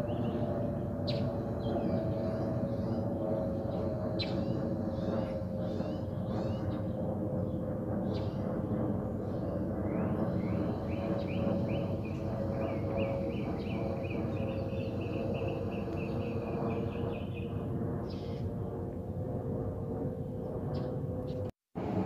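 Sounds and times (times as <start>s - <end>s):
bird chirping: 0.0s - 3.0s, 3.7s - 6.9s, 9.9s - 18.4s
jet airliner rumble overhead: 0.0s - 22.0s.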